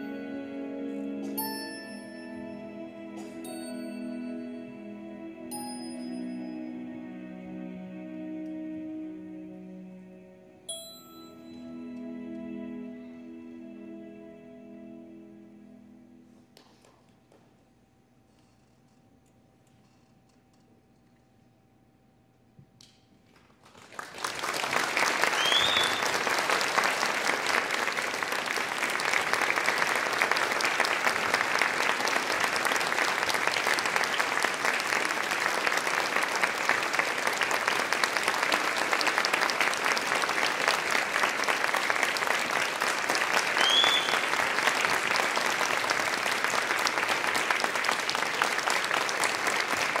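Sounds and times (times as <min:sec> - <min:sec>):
audience applauding: 0:23.4 - 0:50.0.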